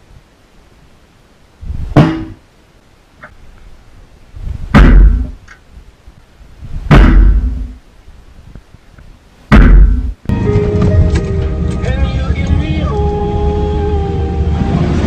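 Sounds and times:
heavy thuds on steel bucket: 2.0 - 2.4, 4.8 - 5.3, 6.9 - 7.6, 9.5 - 10.2.

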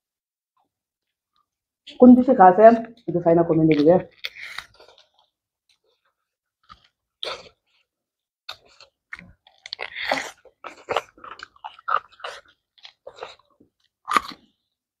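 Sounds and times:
close chewing and crunching: 3.0 - 14.8.

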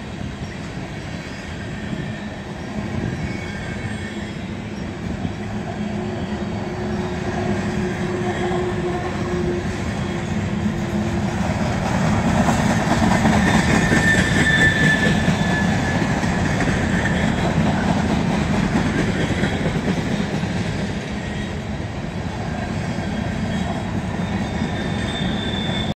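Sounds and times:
freight train rumbling past: 0.0 - 26.0
high wheel squeal: 0.4 - 10.7, 13.2 - 17.9, 21.0 - 21.7, 22.5 - 26.0.

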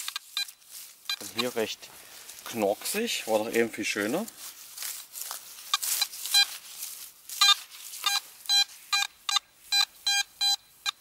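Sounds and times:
metal detector beeping: 0.0 - 1.6, 5.7 - 6.6, 7.4 - 11.0
detector coil rustling grass: 0.0 - 11.0.

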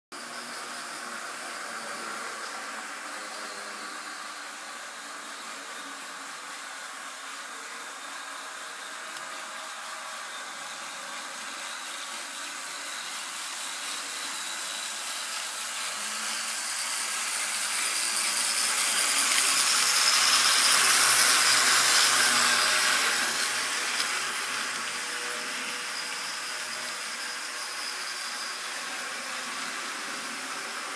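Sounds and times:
model locomotive motor whirring: 0.2 - 30.9
wheels on rails: 9.0 - 30.9.

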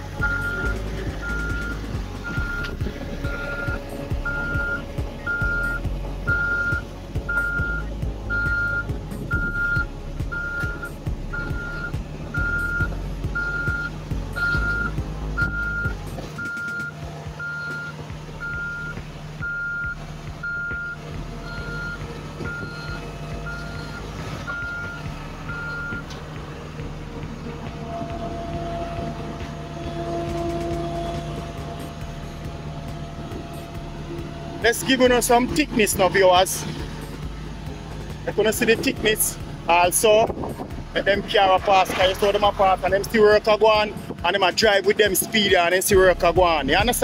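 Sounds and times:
heavy vehicle engine running: 0.0 - 47.0
reversing alarm beeping: 0.2 - 26.2.

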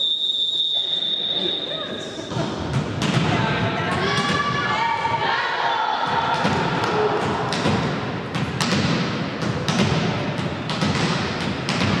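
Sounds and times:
crowd and player noise: 0.0 - 12.0
volleyball thuds: 6.1 - 12.0.

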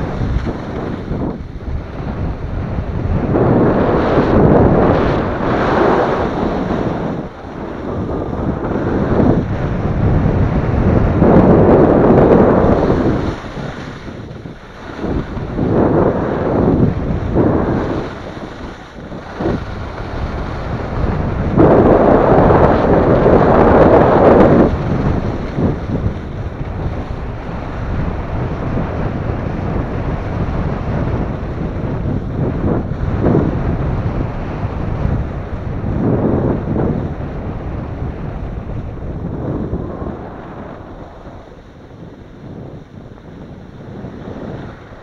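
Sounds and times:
wind buffeting microphone: 0.0 - 45.0
skis scraping over packed snow: 3.4 - 9.2, 11.4 - 16.6.

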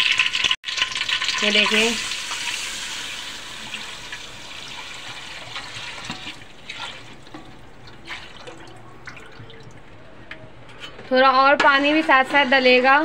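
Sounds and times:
batter pouring into hot oil: 0.0 - 6.1
oil popping: 0.0 - 11.0.

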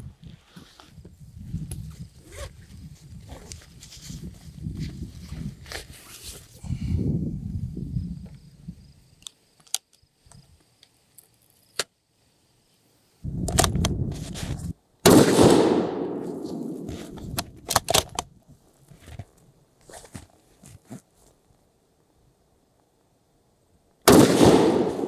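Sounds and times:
loud rifle shot: 15.0 - 17.2, 24.1 - 25.0.

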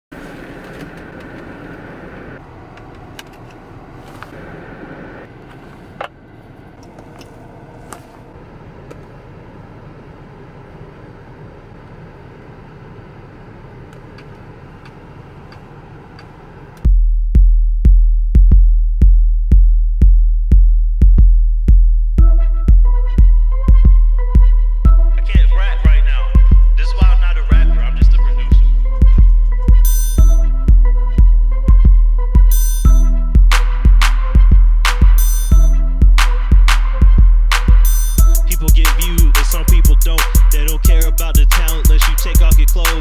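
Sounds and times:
hip-hop beat with deep bass: 16.8 - 43.0.

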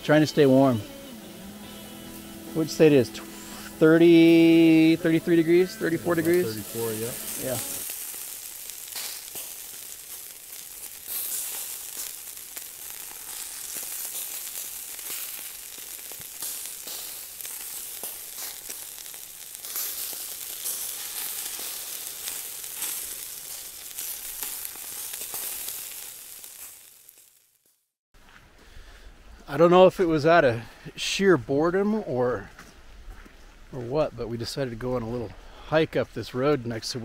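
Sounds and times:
burgers sizzling in a pan: 0.0 - 27.8.

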